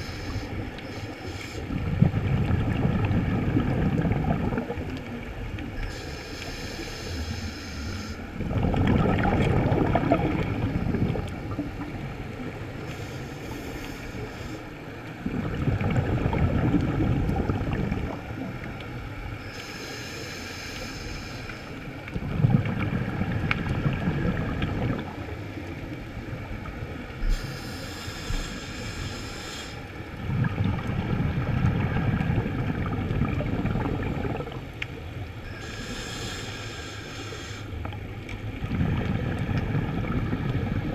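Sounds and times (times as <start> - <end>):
diver breathing through regulator: 0.0 - 1.7, 5.8 - 8.4, 12.8 - 14.8, 19.4 - 21.8, 27.2 - 30.0, 35.5 - 37.8
exhaled bubbles gushing: 1.7 - 5.3, 8.4 - 12.1, 15.2 - 18.9, 22.1 - 25.8, 30.2 - 34.9, 38.4 - 40.9.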